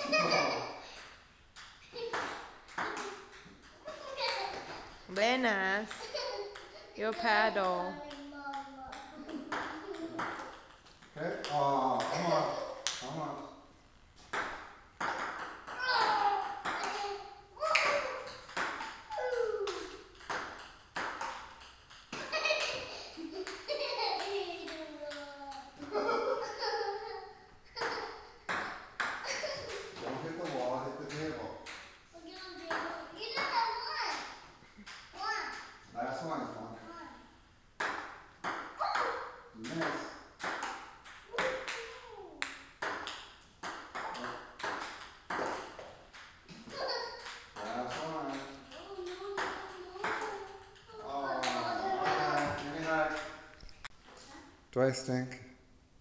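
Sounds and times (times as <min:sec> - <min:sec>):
ping-pong ball clicks: 0:01.0 - 0:04.4, 0:17.7 - 0:22.8, 0:37.8 - 0:46.3, 0:47.2 - 0:51.6.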